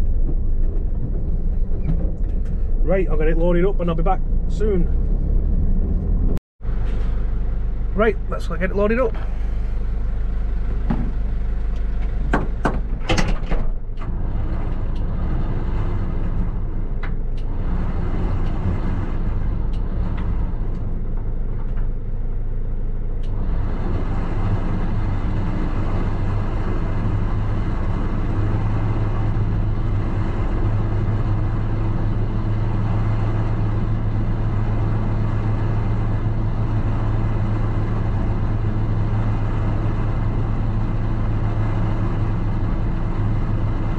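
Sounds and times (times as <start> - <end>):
sharp knocks and clicks: 0.0 - 2.8, 10.8 - 11.2, 11.8 - 15.2
diesel engine idling: 0.0 - 13.1, 13.8 - 43.9.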